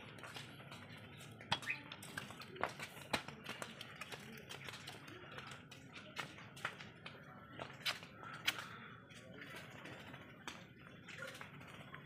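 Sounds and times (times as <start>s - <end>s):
bird feet tapping on cage bars: 0.0s - 8.8s.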